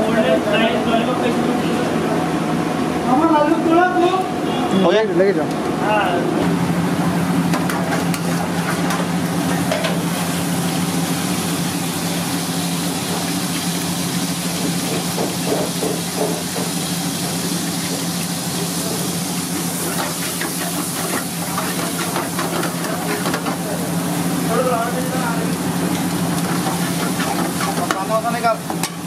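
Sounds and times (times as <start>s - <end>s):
hot oil sizzling in a wok: 7.3s - 29.0s.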